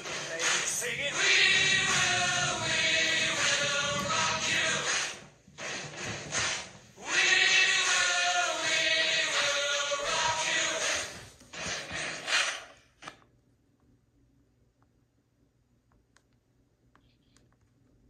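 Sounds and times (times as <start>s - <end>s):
person chanting: 0.0s - 5.2s, 7.0s - 11.1s.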